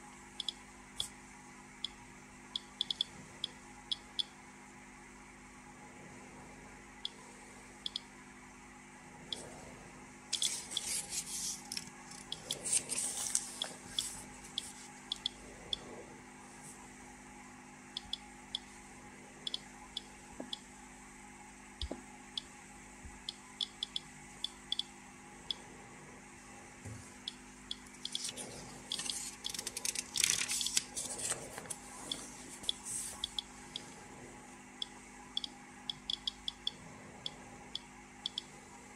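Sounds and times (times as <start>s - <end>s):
geiger counter beeps: 0.4s - 1.1s, 2.6s - 4.3s, 7.8s - 8.1s, 13.6s - 15.9s, 19.5s - 20.7s, 23.2s - 24.9s, 32.1s - 33.9s, 34.8s - 38.5s
paper rustling: 10.4s - 14.9s, 28.1s - 33.2s.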